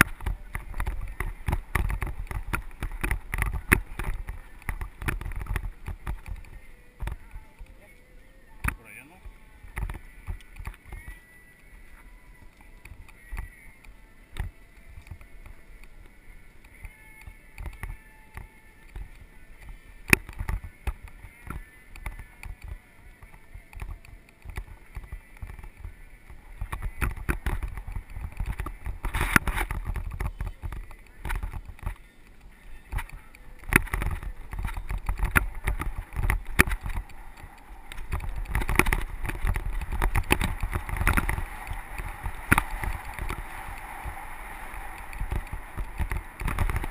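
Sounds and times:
bike rattling over bumps: 0:00.0 - 0:07.9, 0:14.4 - 0:46.9
wind rumble on microphone: 0:00.0 - 0:46.9
tyres crunching on dirt: 0:24.5 - 0:46.9.

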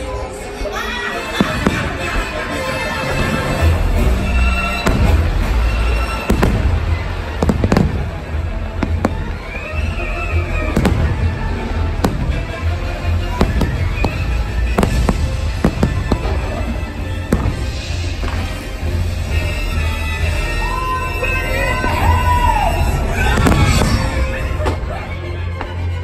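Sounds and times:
loud show music: 0:01.1 - 0:26.0
fireworks bursting: 0:03.3 - 0:20.2, 0:23.2 - 0:24.8.

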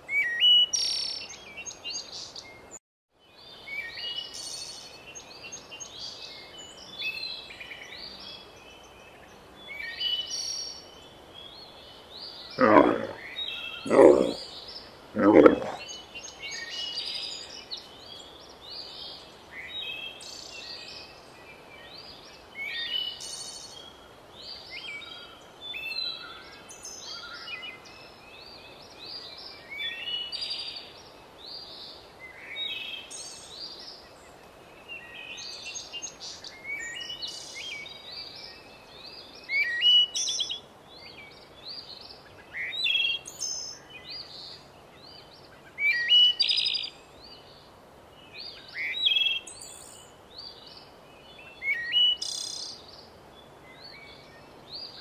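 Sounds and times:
faint steady hiss: 0:00.0 - 0:55.0
birds chirping and singing: 0:11.5 - 0:21.0.

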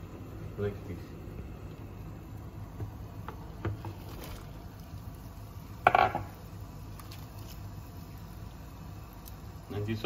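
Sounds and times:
loud knock against pot: 0:05.8 - 0:06.4.

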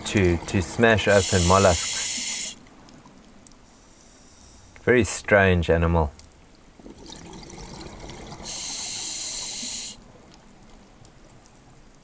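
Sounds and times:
soft underwater wash: 0:00.0 - 0:05.0, 0:06.1 - 0:12.0
regulator breathing hiss: 0:01.1 - 0:02.6, 0:03.7 - 0:04.8, 0:08.4 - 0:10.0.

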